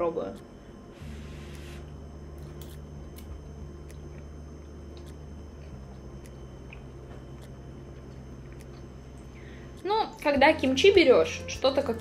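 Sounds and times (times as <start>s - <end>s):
steady low hum: 0.0s - 12.0s
person chewing noodles: 1.0s - 9.8s.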